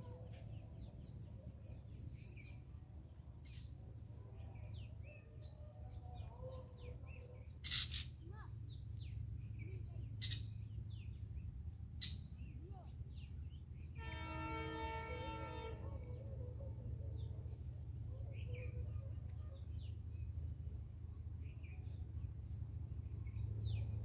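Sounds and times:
small birds chirping: 0.0s - 14.0s
steady low rumble: 15.9s - 24.0s.

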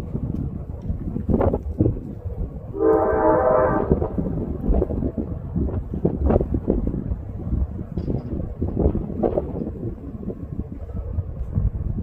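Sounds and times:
freight train rumbling: 0.0s - 12.0s
wind buffeting microphone: 0.0s - 12.0s
train horn: 2.8s - 4.6s.

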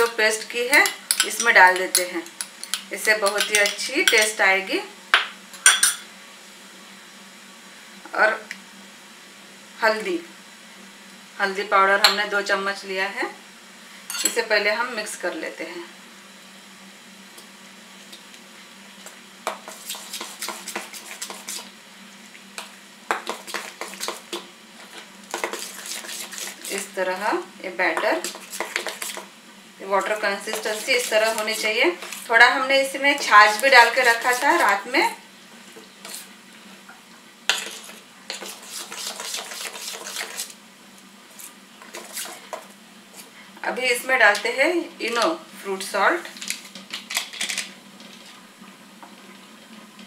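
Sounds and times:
spoon scraping steel bowl: 24.8s - 26.9s, 28.0s - 29.3s, 30.0s - 32.3s, 37.5s - 40.5s.

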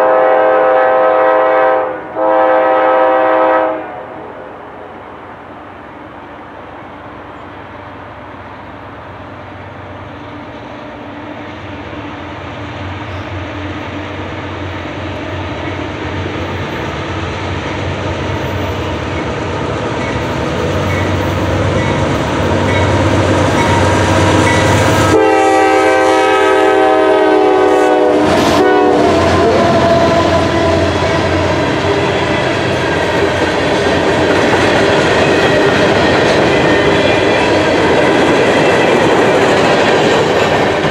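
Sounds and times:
locomotive horn: 0.0s - 4.3s, 23.6s - 32.3s
diesel locomotive engines droning: 0.0s - 40.9s
train wheels on rails: 5.0s - 40.9s.

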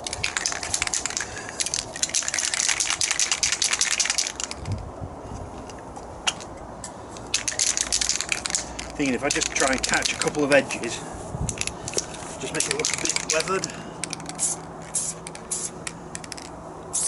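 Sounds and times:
aerosol cans rattling: 0.0s - 4.7s, 7.3s - 10.4s, 11.6s - 16.5s.

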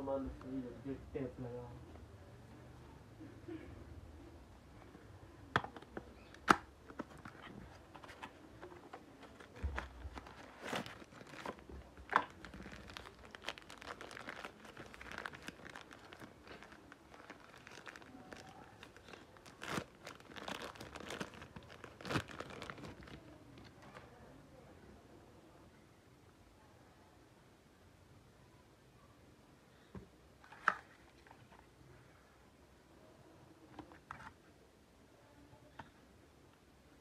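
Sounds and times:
plastic bag crinkling: 7.2s - 23.9s.

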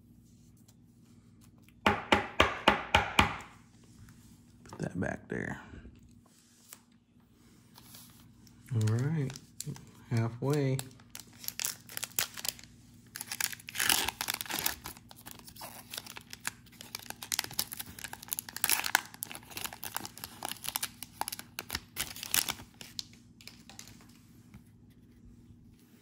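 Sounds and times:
plastic wrapper crinkling: 7.7s - 24.2s
plastic wrapper ripping: 8.6s - 24.0s.

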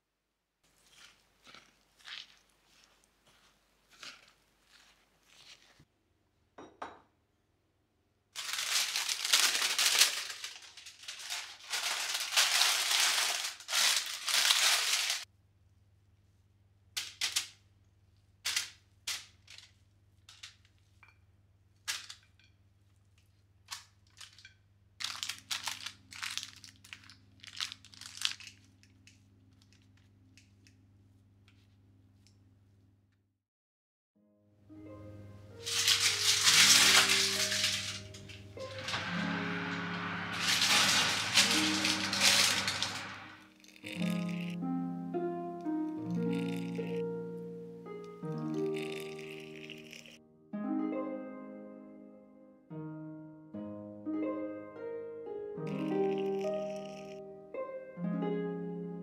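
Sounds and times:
parchment paper crinkling: 0.7s - 5.9s, 8.4s - 15.3s, 18.4s - 21.0s, 22.9s - 32.5s, 35.6s - 44.6s, 45.6s - 47.0s, 48.0s - 50.2s, 55.7s - 57.2s.

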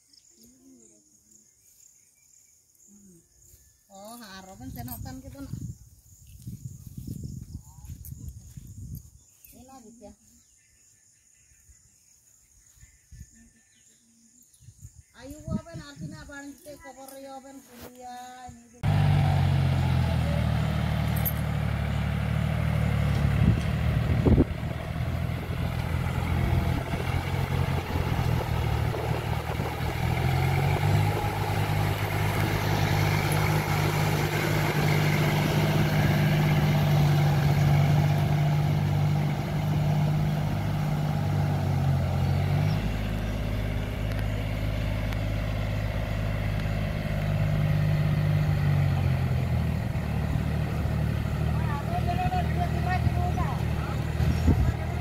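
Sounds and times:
diesel tractor engine under load: 18.8s - 55.0s.

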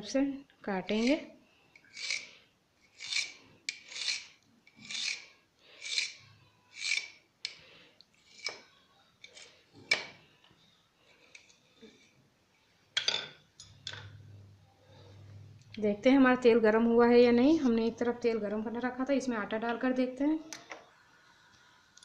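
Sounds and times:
knife scraping board: 0.9s - 1.2s, 1.9s - 7.2s, 8.2s - 8.7s.

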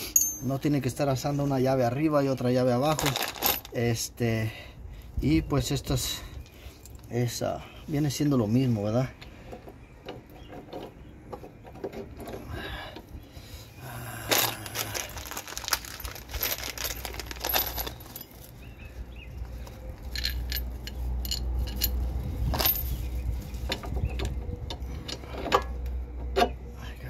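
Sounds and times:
bolts and nuts clinking: 0.0s - 1.2s, 2.4s - 4.1s, 14.3s - 18.6s, 19.5s - 26.6s
low steady rumble: 12.0s - 27.0s.

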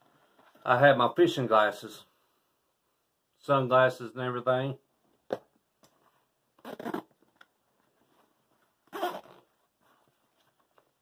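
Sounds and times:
zipper rasping: 6.6s - 7.2s, 8.9s - 9.5s.

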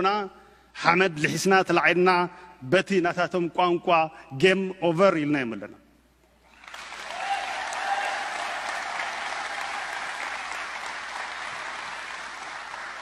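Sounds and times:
audience applauding: 6.5s - 13.0s.

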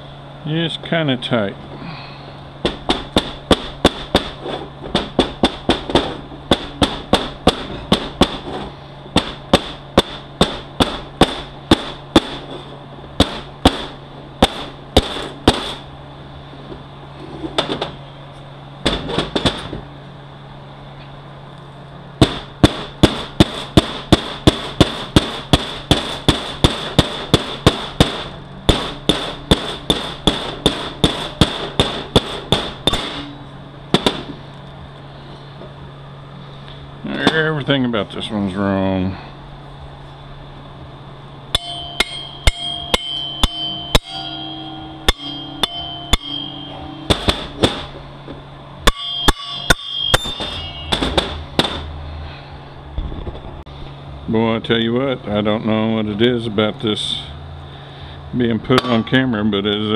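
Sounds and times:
hammer striking metal driver: 22.2s - 33.4s, 41.5s - 48.0s, 48.8s - 51.9s, 58.8s - 59.3s.

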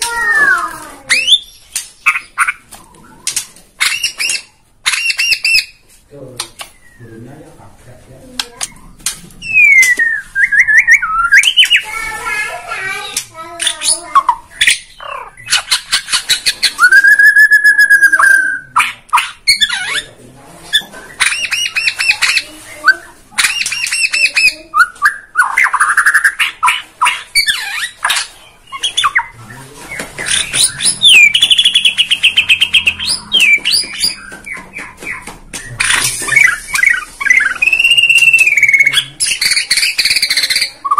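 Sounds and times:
bird singing whistles and trills: 1.1s - 1.6s, 9.4s - 11.8s, 16.4s - 18.7s, 29.9s - 40.9s.

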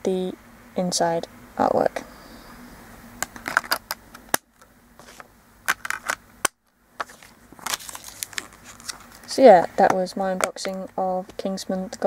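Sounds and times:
plastic disc case clicks: 3.2s - 4.4s, 5.0s - 9.3s.

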